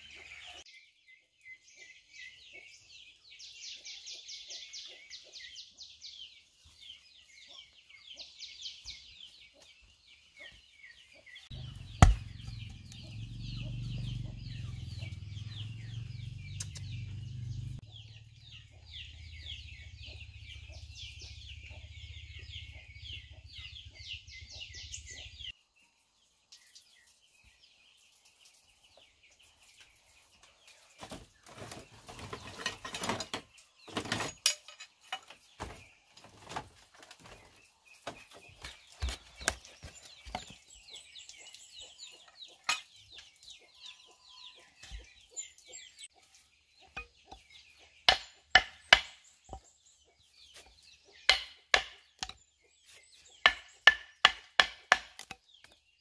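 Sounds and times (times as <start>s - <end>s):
hatchet chopping wood: 11.5s - 13.1s, 47.0s - 49.6s, 51.2s - 52.4s, 53.4s - 55.8s
chickens clucking: 35.0s - 53.9s.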